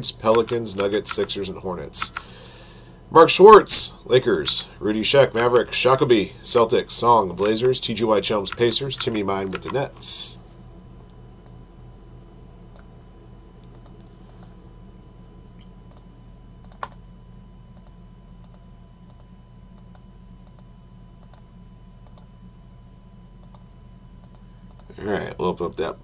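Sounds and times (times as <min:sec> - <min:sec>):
low hum: 0:00.0 - 0:26.0
keyboard and mouse clicks: 0:00.2 - 0:01.3, 0:02.0 - 0:02.3, 0:05.3 - 0:05.7, 0:08.5 - 0:09.8, 0:13.6 - 0:14.5, 0:16.6 - 0:17.0.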